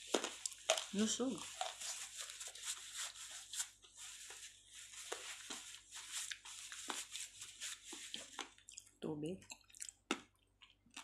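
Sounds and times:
tissue paper crinkling: 0.0 - 8.6.

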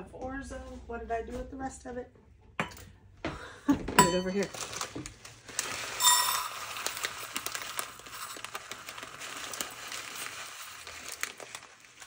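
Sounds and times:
plastic bag crinkling: 4.2 - 12.0
pasta grains pouring into metal cup: 5.4 - 12.0.

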